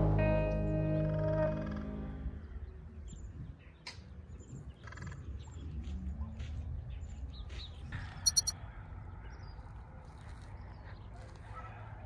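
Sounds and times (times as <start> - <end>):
small birds chirping: 1.2 - 8.6
sharp high bird notes: 8.3 - 8.5.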